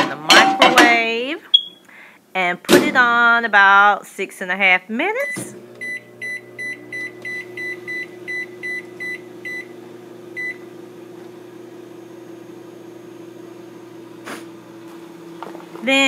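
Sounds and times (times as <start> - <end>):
microwave keypad beeping: 5.2 - 10.7
microwave oven humming: 5.5 - 16.0.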